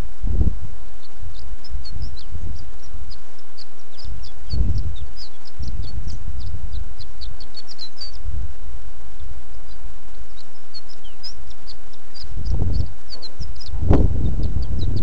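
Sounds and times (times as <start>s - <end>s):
wind buffeting microphone: 0.0s - 8.6s, 10.3s - 15.0s
high bird chirps: 0.9s - 8.3s, 9.1s - 15.0s.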